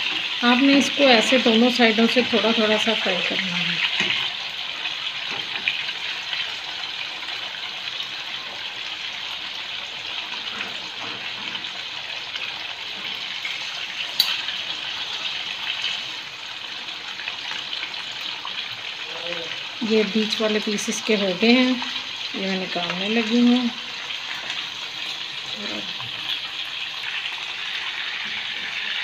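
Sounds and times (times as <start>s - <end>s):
fish sizzling in hot fat: 0.0s - 29.0s.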